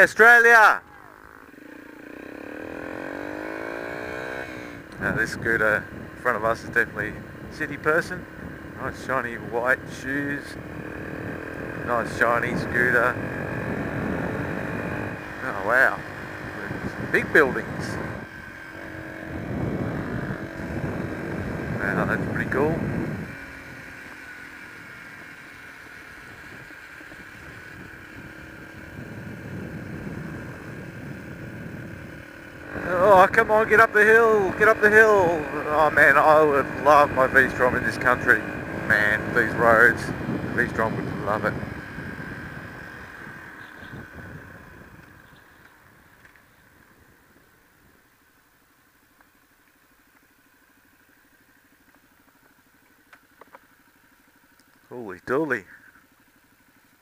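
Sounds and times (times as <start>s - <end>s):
motorcycle engine running: 0.0s - 57.0s
wind rushing over microphone: 4.3s - 23.4s, 26.5s - 46.1s.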